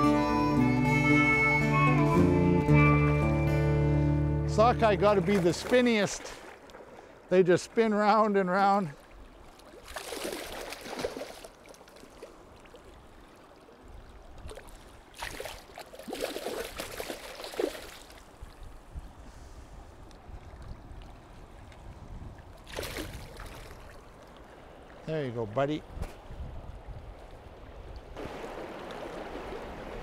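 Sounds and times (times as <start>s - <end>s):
fish thrashing and splashing: 9.4s - 12.9s, 14.5s - 18.3s, 22.6s - 24.1s
river rushing: 28.2s - 30.0s.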